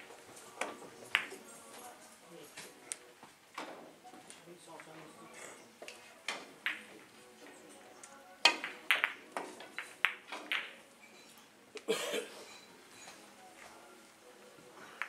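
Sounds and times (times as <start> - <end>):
billiard balls clicking: 0.6 - 1.5, 6.3 - 7.1, 8.5 - 10.8.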